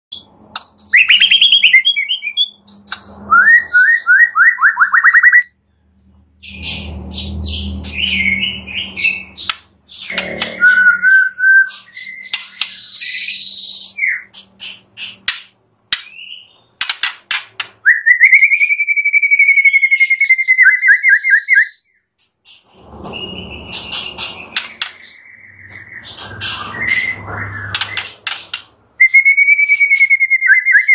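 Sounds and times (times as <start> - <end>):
bird singing whistles and trills: 0.9 - 2.6, 3.2 - 5.6, 6.4 - 14.3, 17.8 - 22.0, 23.1 - 28.2, 29.0 - 30.9.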